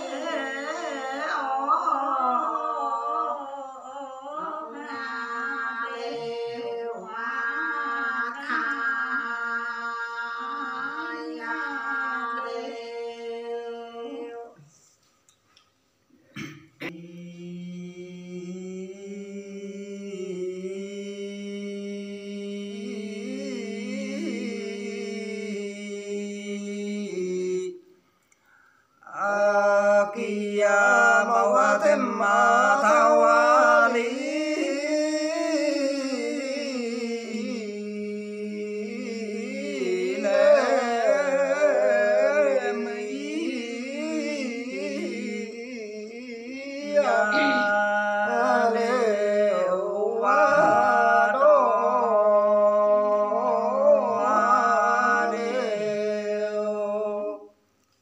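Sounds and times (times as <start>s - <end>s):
person singing unaccompanied: 0.0s - 14.7s, 29.2s - 57.5s.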